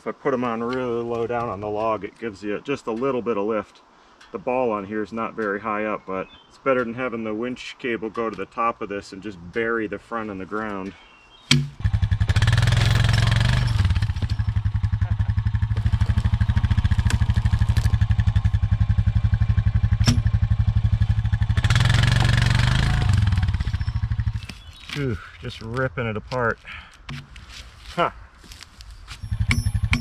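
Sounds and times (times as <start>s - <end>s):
atv engine running: 11.5s - 25.0s, 29.1s - 30.0s.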